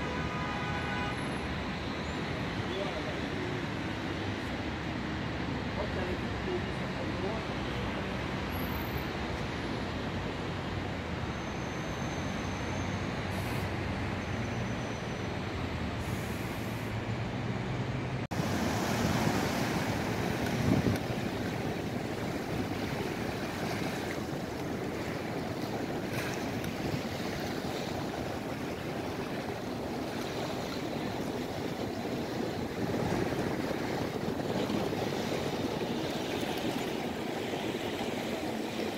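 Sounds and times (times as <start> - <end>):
city traffic hum: 0.0 - 38.9
wind: 0.0 - 38.9
water lapping: 18.3 - 38.9.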